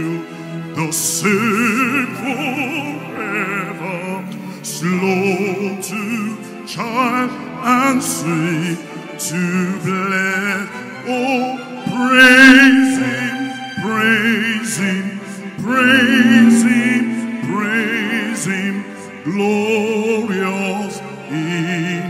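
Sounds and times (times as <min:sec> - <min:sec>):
operatic singing with vibrato: 0:11.4 - 0:19.5
musical accompaniment: 0:11.6 - 0:19.5.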